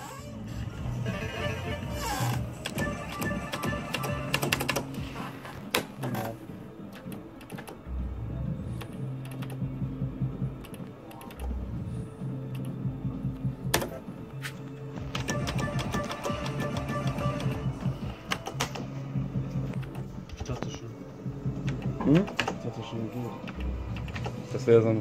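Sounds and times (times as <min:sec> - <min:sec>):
slot machine tones and jingles: 0:02.7 - 0:04.7, 0:15.2 - 0:17.9.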